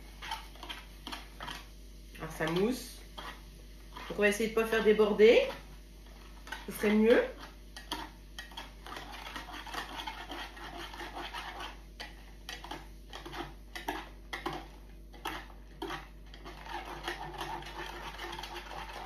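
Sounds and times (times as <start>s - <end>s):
whisk scraping plastic jug: 0.0s - 19.0s.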